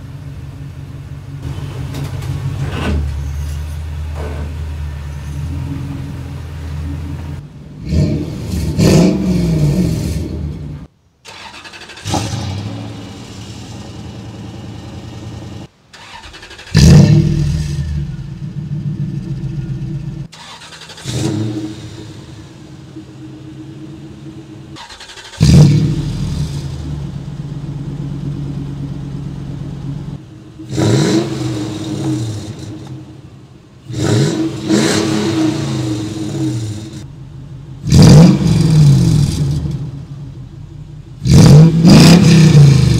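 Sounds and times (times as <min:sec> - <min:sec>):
engine idling: 0:00.0 - 0:08.7, 0:10.2 - 0:41.9
engine starting: 0:01.9 - 0:04.5, 0:11.2 - 0:12.9, 0:15.9 - 0:17.9, 0:20.3 - 0:22.2, 0:24.8 - 0:26.7
engine revving: 0:04.1 - 0:37.1, 0:37.8 - 0:40.2, 0:41.2 - 0:42.9.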